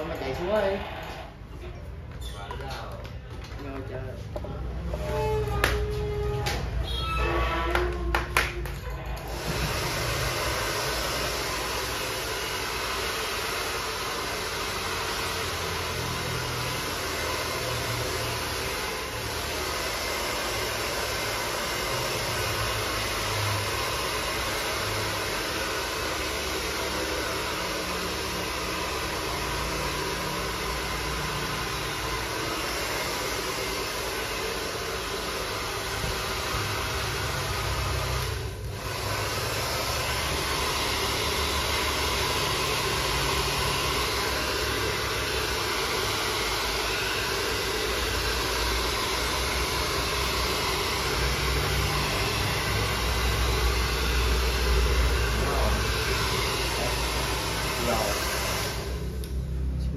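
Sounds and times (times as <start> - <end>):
hair dryer blowing: 0.0 - 1.5, 4.3 - 6.8, 7.5 - 59.9.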